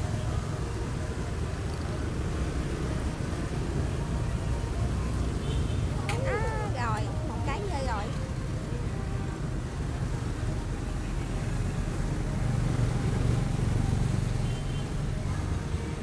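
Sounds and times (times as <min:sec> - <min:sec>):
passing vehicles rumbling: 0:00.0 - 0:16.0.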